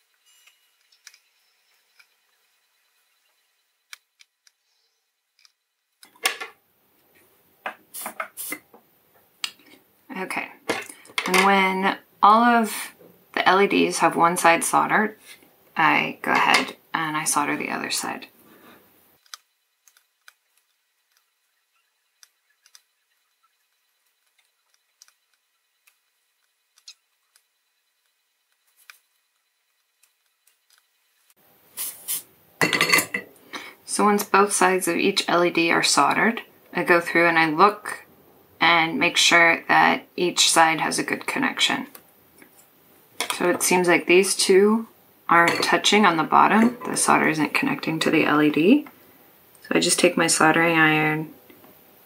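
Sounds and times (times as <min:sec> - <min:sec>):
tools clattering on tabletop: 0:32.6 - 0:33.3.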